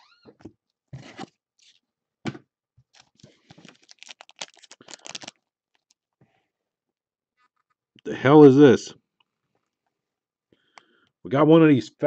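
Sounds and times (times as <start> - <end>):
wrapper crinkling and tearing: 2.9 - 6.0.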